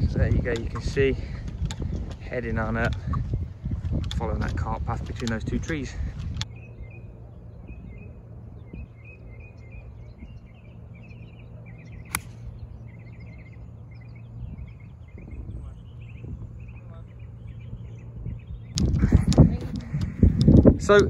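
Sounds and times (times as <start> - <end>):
birds chirping: 0.0 - 21.0
low steady rumble: 0.0 - 21.0
golf club striking ball: 12.0 - 12.7.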